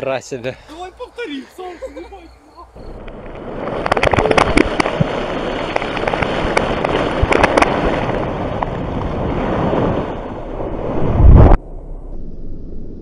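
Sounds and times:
sharp cracks: 2.8s - 9.2s
water churning and spraying: 2.9s - 11.5s.

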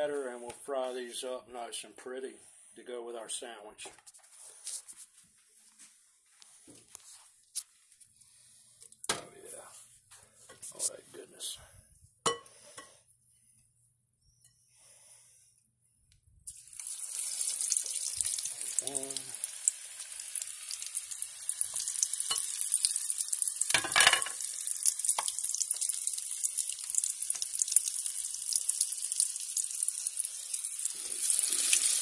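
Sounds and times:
food deep-frying in hot oil: 16.5s - 32.0s.

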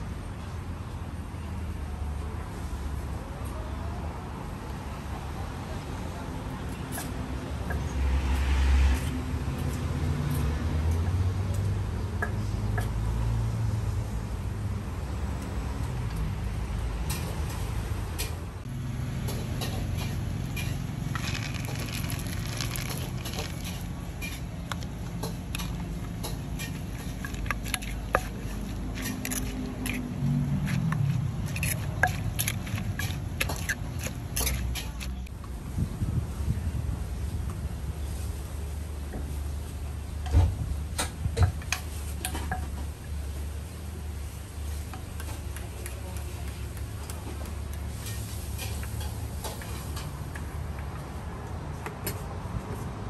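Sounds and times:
traffic rumble: 0.0s - 53.0s
food preparation clicks and knocks: 19.2s - 35.3s.

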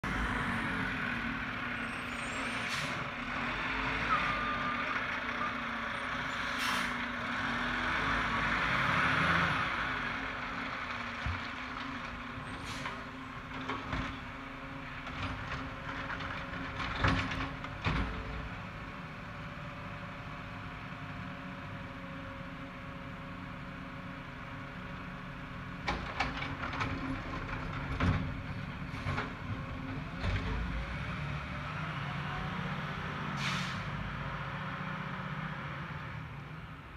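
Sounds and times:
garbage truck diesel engine: 0.0s - 36.9s
air brake hisses: 6.5s - 7.0s, 33.4s - 33.9s.

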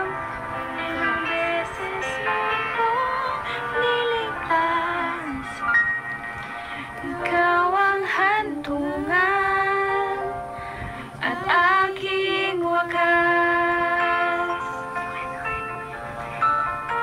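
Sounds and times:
music: 0.0s - 17.0s
woman singing: 0.8s - 5.7s, 7.0s - 10.5s, 11.1s - 14.8s.

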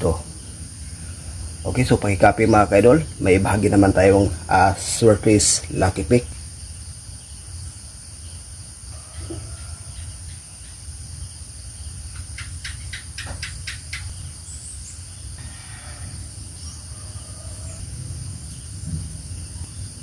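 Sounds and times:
high-pitched hiss: 14.1s - 20.0s.

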